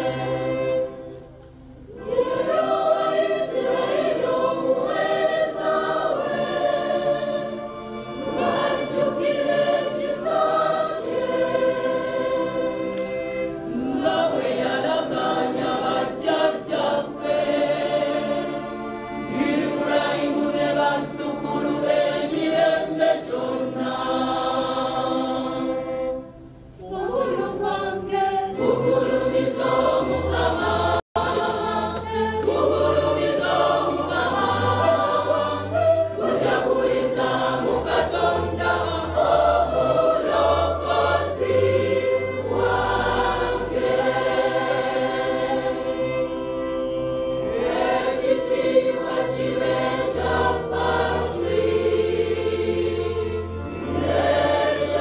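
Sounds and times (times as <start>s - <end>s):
women's choir singing hymn: 0.0s - 1.0s, 1.9s - 46.7s, 47.3s - 55.0s.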